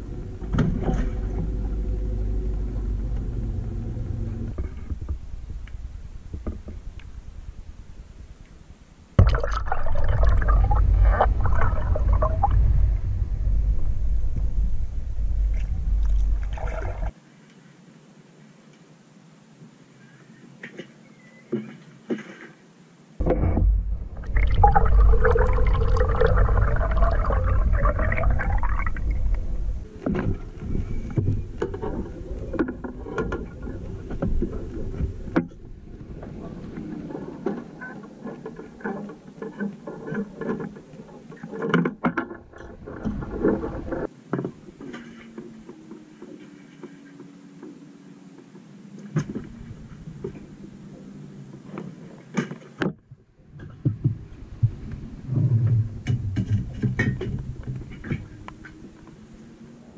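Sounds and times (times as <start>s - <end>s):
low rumble: 0.0s - 17.1s, 23.2s - 37.1s.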